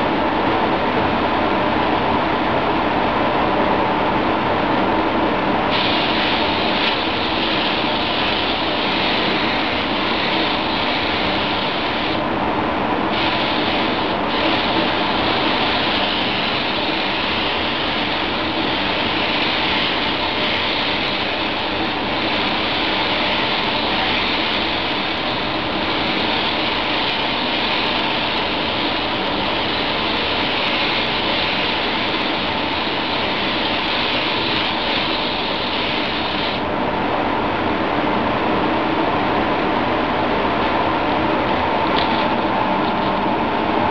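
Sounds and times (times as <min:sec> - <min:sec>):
rush of booth air: 0:00.0 - 0:43.9
paint spray gun hissing: 0:05.7 - 0:12.3, 0:13.0 - 0:36.6.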